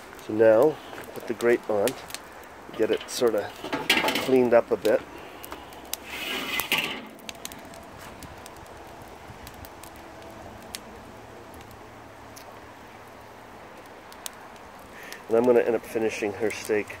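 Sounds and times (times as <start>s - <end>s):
charcoal hissing: 0.0s - 17.0s
charcoal ticks and crackles: 0.0s - 17.0s
grill grate scrubbing: 2.7s - 8.2s.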